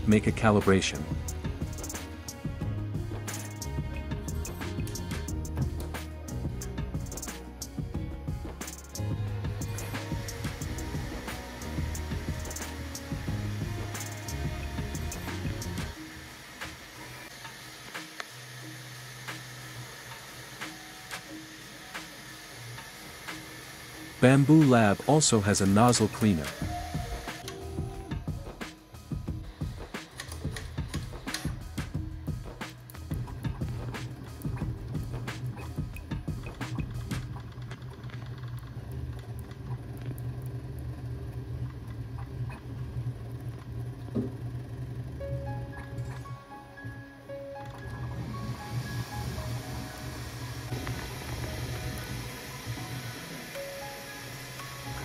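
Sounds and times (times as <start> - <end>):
fan hiss: 8.6 - 37.4, 43.2 - 55.0
stepper motor tones: 9.0 - 55.0.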